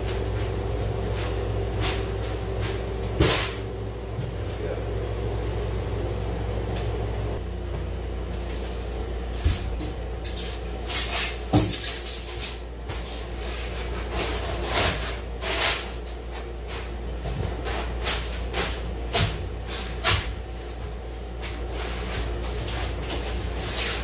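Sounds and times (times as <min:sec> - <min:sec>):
insulation board scraping: 0:19.6 - 0:24.0.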